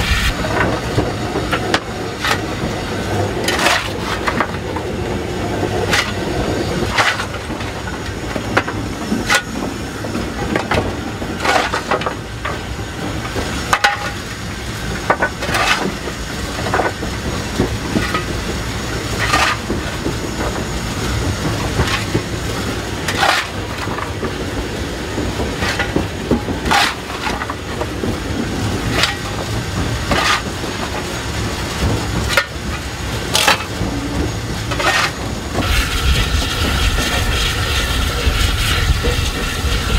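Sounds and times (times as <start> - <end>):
coal shovel scraping and clanking: 0.0 - 0.8, 3.4 - 4.8, 5.8 - 9.6, 10.2 - 12.6, 15.0 - 16.0, 19.0 - 20.6, 21.6 - 24.4, 25.5 - 28.0, 28.8 - 31.1, 32.2 - 39.9
locomotive low rumble: 0.0 - 39.9.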